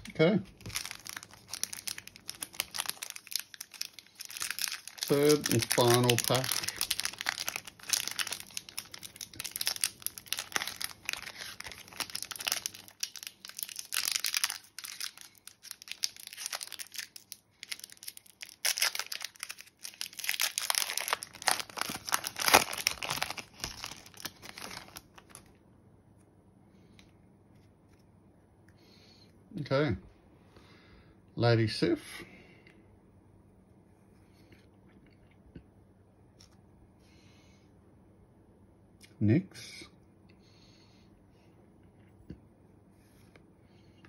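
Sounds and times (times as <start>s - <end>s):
foil wrapper tearing and crinkling: 0.5s - 25.5s.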